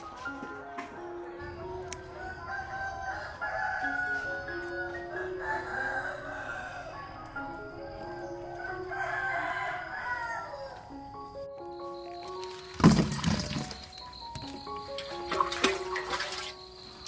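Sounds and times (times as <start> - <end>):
soft background music: 0.0 - 17.0
rooster crowing: 2.1 - 10.8.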